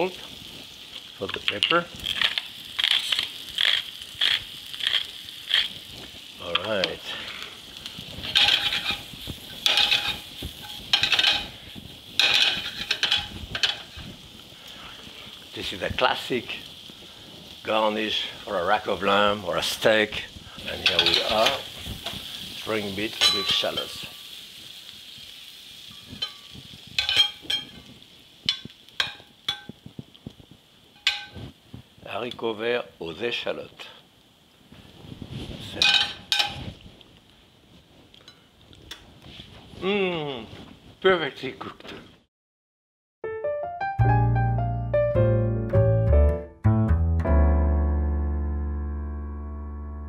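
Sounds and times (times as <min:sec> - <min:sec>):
beans sizzling in a pan: 0:00.0 - 0:41.5
metal tongs clinking on pan: 0:08.2 - 0:11.6, 0:12.2 - 0:14.0, 0:20.6 - 0:22.2, 0:23.0 - 0:24.4, 0:25.9 - 0:27.9, 0:28.5 - 0:29.8, 0:31.0 - 0:31.4, 0:35.8 - 0:36.6.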